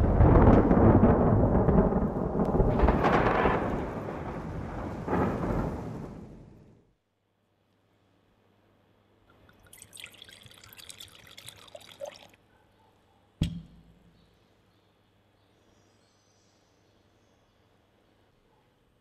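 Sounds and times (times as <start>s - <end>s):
wine pouring into glass: 9.3s - 12.4s
sharp knock: 13.4s - 14.1s.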